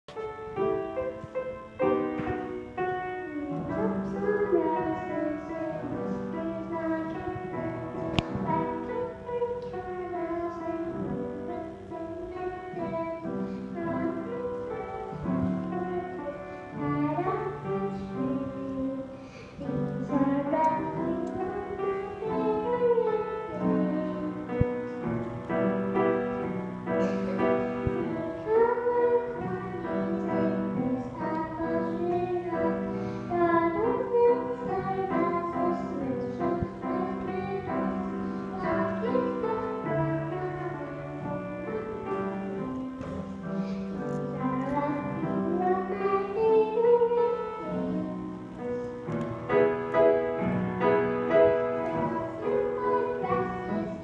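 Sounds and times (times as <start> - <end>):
girl singing into microphone: 0.1 - 54.0
musical accompaniment: 0.1 - 54.0.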